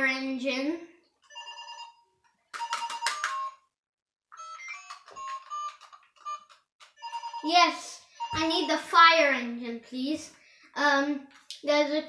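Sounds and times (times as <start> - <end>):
toy phone electronic beeps: 1.2 - 2.0, 4.3 - 7.5, 8.1 - 8.8.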